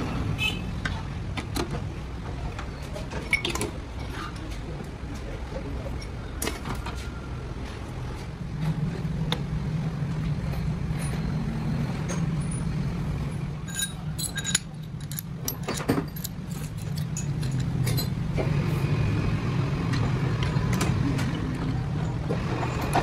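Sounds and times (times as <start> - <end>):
metal parts clinking: 13.6 - 18.2.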